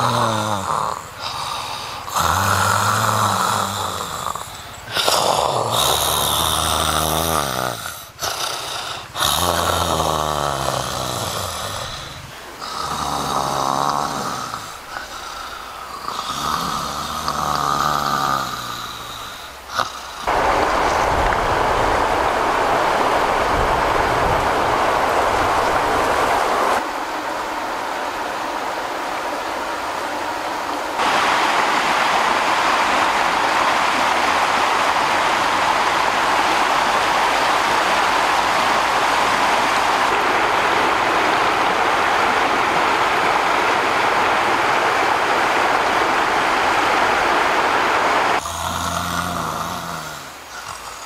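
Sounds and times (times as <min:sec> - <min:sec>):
person snoring loudly: 0:00.0 - 0:20.3, 0:48.3 - 0:51.0
steady rushing noise: 0:19.5 - 0:48.4.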